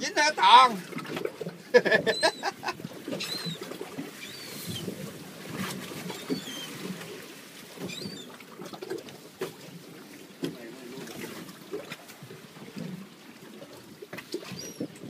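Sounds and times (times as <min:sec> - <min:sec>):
water slapping against hull: 0:00.0 - 0:15.0
wind: 0:00.0 - 0:15.0
seabird calls: 0:01.7 - 0:05.1, 0:06.0 - 0:08.7, 0:14.4 - 0:15.0.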